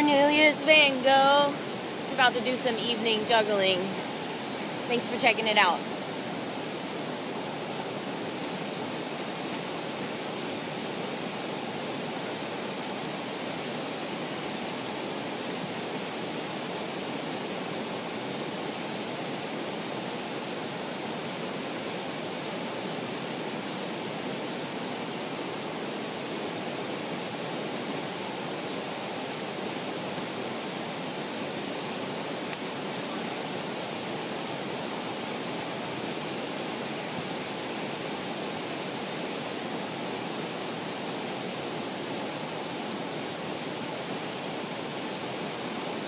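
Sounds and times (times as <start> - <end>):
waterfall roaring: 0.0 - 46.0.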